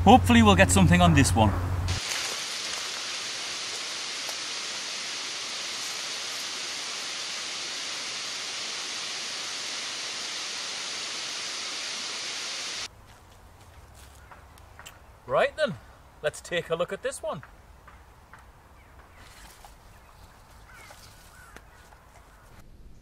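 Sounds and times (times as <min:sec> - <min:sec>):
microphone hiss: 0:00.0 - 0:12.9.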